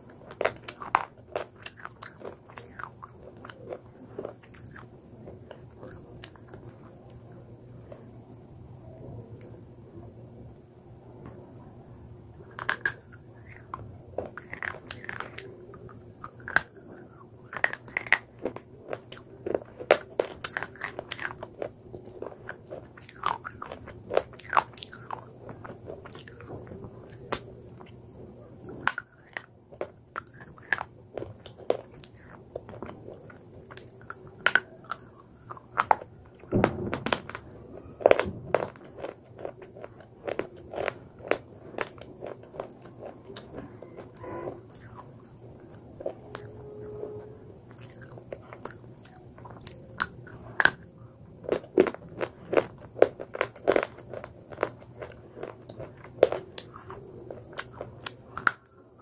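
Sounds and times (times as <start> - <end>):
chewing brittle crunches: 0.0 - 8.1, 12.4 - 59.0.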